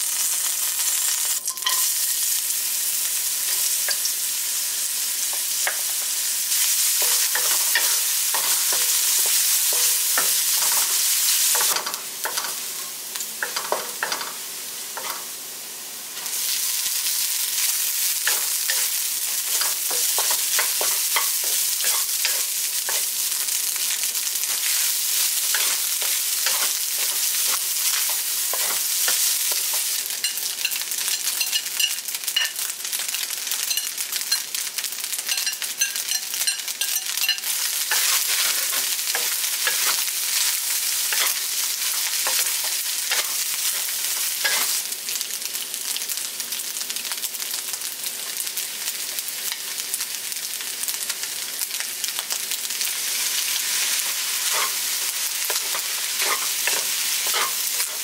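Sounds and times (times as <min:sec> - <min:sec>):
food sizzling in hot oil: 0:00.0 - 0:58.0
spatula scraping and tapping pan: 0:13.4 - 0:14.4, 0:15.0 - 0:15.2, 0:18.3 - 0:23.1, 0:25.5 - 0:32.6, 0:35.3 - 0:40.0, 0:41.1 - 0:44.8, 0:54.0 - 0:58.0.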